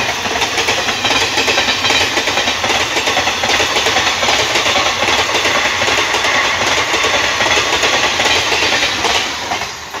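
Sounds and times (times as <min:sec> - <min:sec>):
train wheels clattering on rails: 0:00.0 - 0:10.0.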